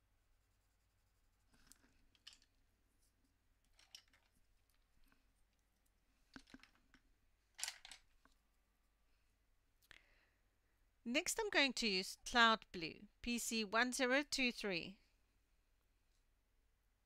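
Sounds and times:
wooden pencils clicking and knocking: 0:01.5 - 0:02.6, 0:03.6 - 0:05.2, 0:06.3 - 0:08.4.

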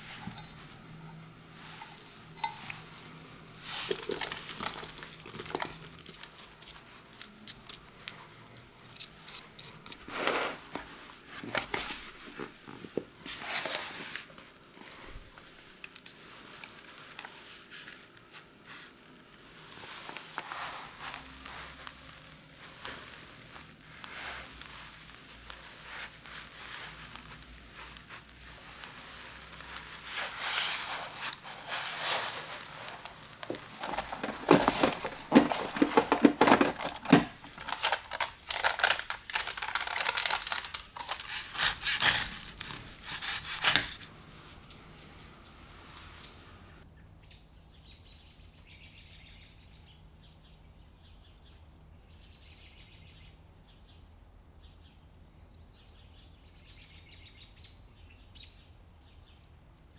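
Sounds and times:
plastic bag crinkling: 0:00.0 - 0:44.1.

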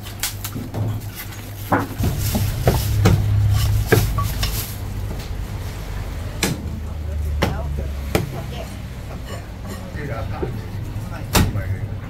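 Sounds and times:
low hum: 0:02.0 - 0:08.2.

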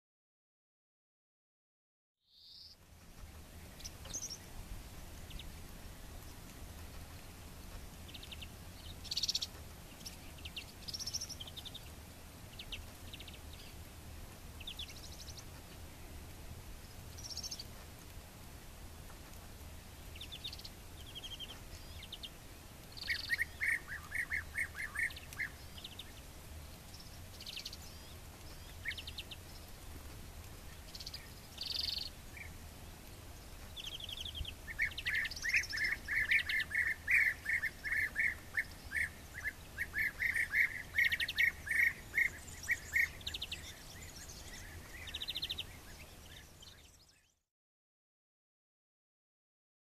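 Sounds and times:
high bird chirps: 0:22.9 - 0:26.2, 0:33.8 - 0:47.4.

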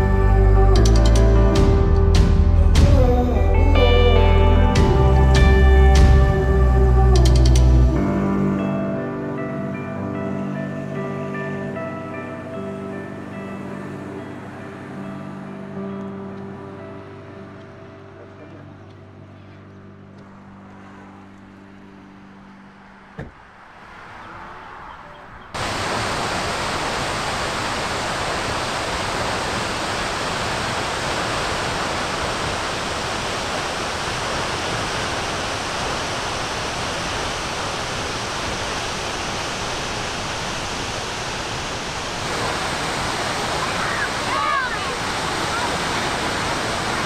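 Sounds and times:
waterfall roaring: 0:25.6 - 0:47.0.

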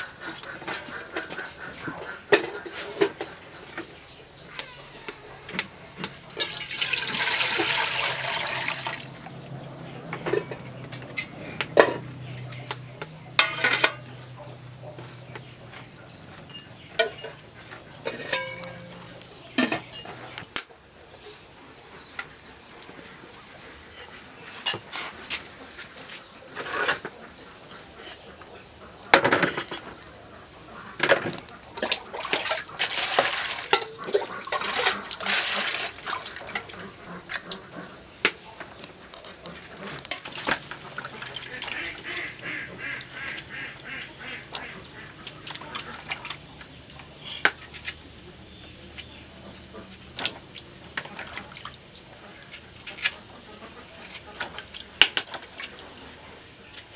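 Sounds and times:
water splashing in basin: 0:06.2 - 0:09.4, 0:31.8 - 0:37.6, 0:39.7 - 0:46.8
ceramic bowl and metal pot clinking: 0:13.4 - 0:14.2, 0:16.4 - 0:20.2, 0:33.7 - 0:34.1.

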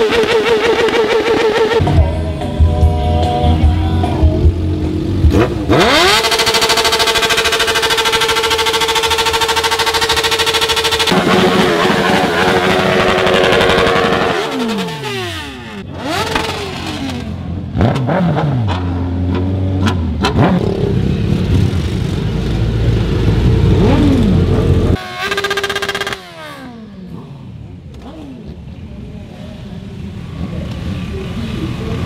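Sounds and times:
motorcycle engine revving: 0:00.0 - 0:02.0, 0:03.2 - 0:28.9.

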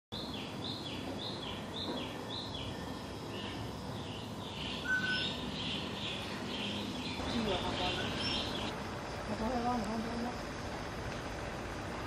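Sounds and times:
high chirping call: 0:00.2 - 0:08.7
thin whistle: 0:04.8 - 0:05.3.

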